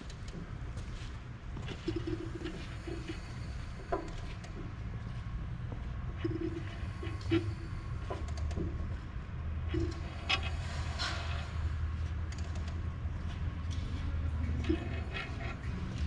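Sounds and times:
crankshaft creaks and clicks: 0.0s - 0.5s, 3.8s - 4.8s, 6.2s - 9.0s, 9.6s - 13.0s
steady low hum: 0.0s - 16.0s.

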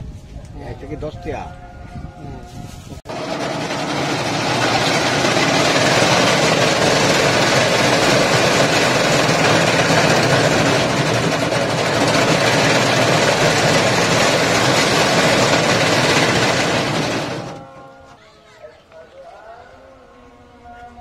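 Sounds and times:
cotton candy machine running: 3.1s - 18.2s.

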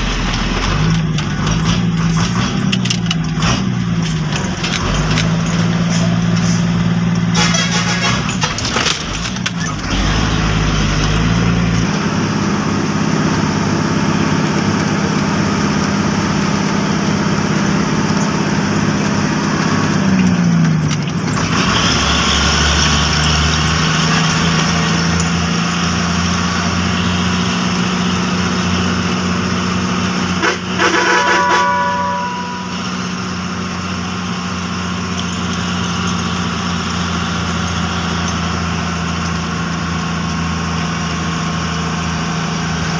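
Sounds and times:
truck engine running under load: 0.0s - 42.9s
brief multi-tone sound: 30.8s - 33.2s.

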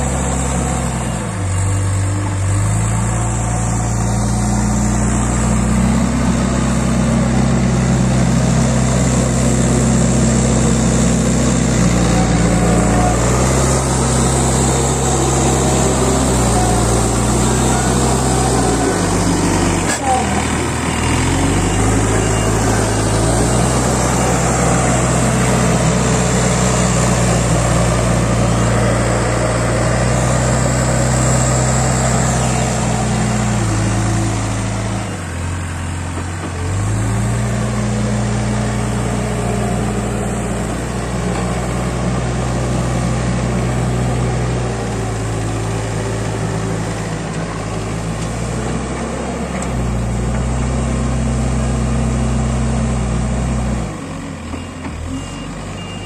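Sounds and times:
diesel engine of backhoe loader: 0.0s - 56.0s
reversing alarm beeping: 20.9s - 25.9s, 54.5s - 56.0s.

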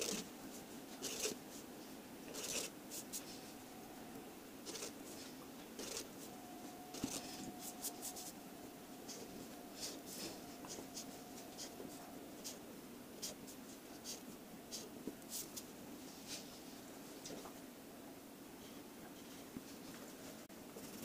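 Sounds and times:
marker scratching on paper: 7.0s - 8.3s.

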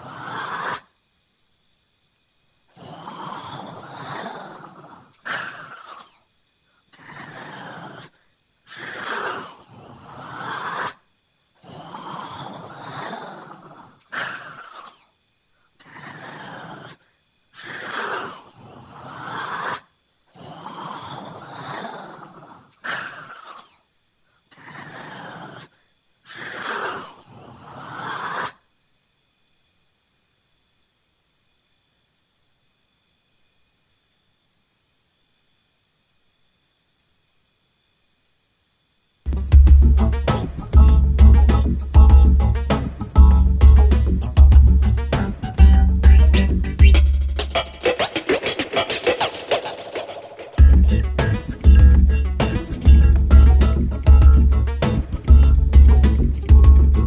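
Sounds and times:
insects chirping: 0.0s - 57.0s
lion roaring: 2.8s - 6.1s, 11.6s - 14.9s, 20.4s - 23.7s.

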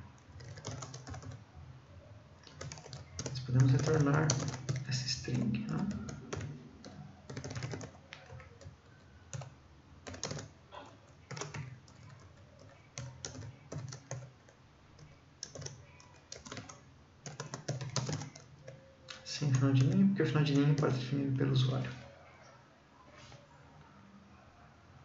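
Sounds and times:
computer keyboard typing: 0.2s - 1.4s, 2.4s - 10.5s, 11.1s - 21.1s.

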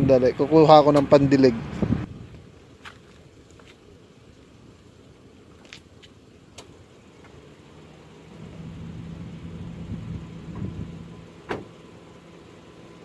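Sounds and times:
vehicle passing with low hum: 6.2s - 13.0s.

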